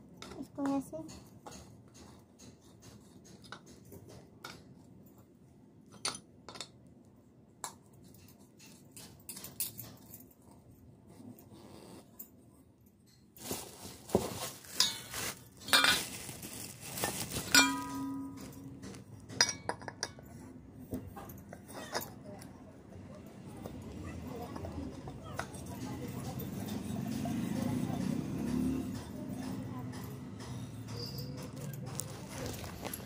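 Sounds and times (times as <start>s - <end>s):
rustling: 13.4s - 18.7s, 31.9s - 33.0s
metal piece ringing: 17.6s - 18.7s.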